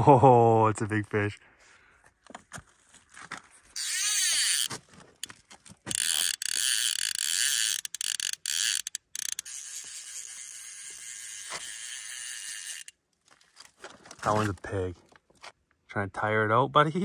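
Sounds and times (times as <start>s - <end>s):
fly reel ratcheting: 3.8s - 5.3s, 5.9s - 12.9s.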